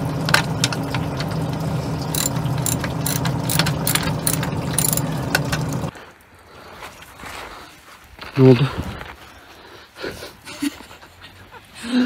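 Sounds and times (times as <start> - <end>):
hand crank metallic clicks: 2.1 - 5.6.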